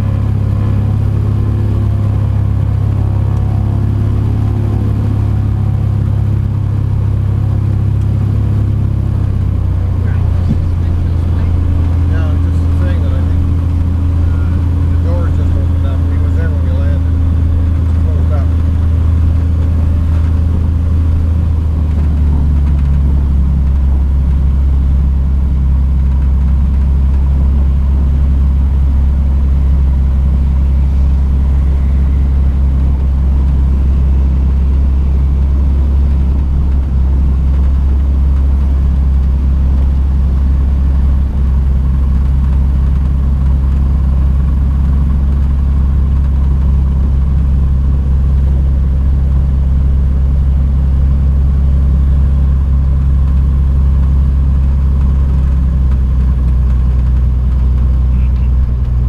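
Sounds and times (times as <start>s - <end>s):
turboprop engine droning: 0.0s - 59.0s.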